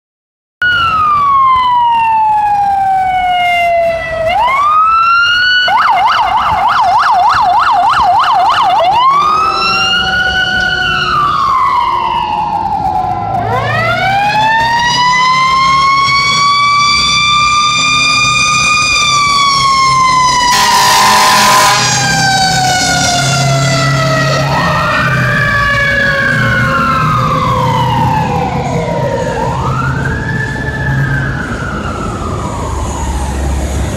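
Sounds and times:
fire engine sirens wailing: 0.6 - 33.9
heavy truck engine rumbling: 0.7 - 33.9
horn blast: 20.5 - 24.9.

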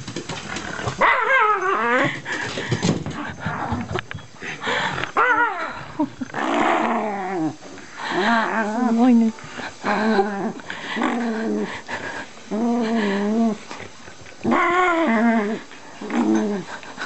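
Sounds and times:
dog growling and whining: 0.7 - 2.2, 3.2 - 4.5, 5.2 - 9.1, 9.8 - 11.8, 12.5 - 16.8.

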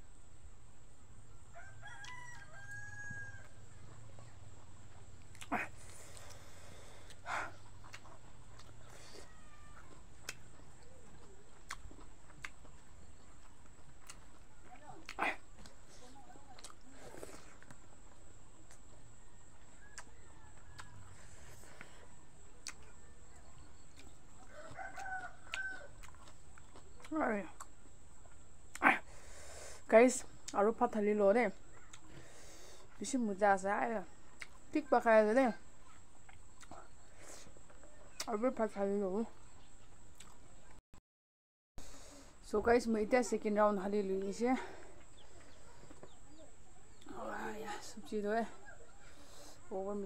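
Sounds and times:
rooster crowing: 1.5 - 4.0, 19.1 - 21.6, 24.4 - 26.1
mouth clicks from eating: 19.8 - 21.0.

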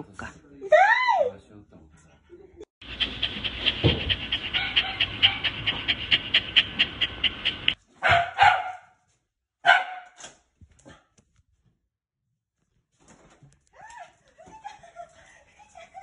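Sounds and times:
dog panting fast: 2.8 - 7.8.

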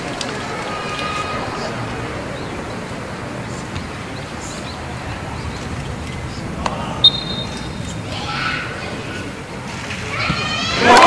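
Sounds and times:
stadium crowd murmuring: 0.0 - 11.0
referee's whistle blast: 7.0 - 7.6.

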